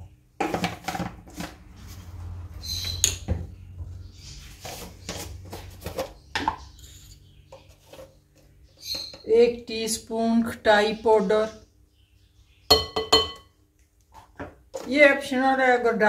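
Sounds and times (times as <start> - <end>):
kitchen things rustling and clattering: 0.0 - 9.9, 12.7 - 15.6.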